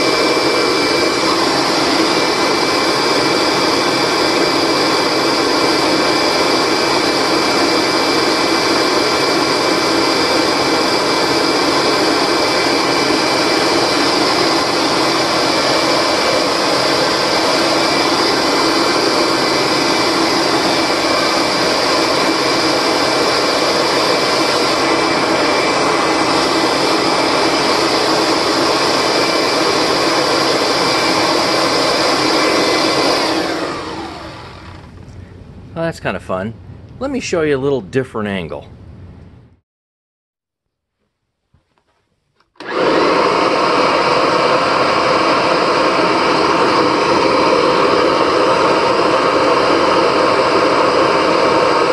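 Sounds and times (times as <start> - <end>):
motor winding down: 0.0 - 35.2, 42.5 - 51.9
vacuum cleaner motor whine: 0.0 - 35.4, 42.4 - 51.9
rushing exhaust air: 0.0 - 35.9.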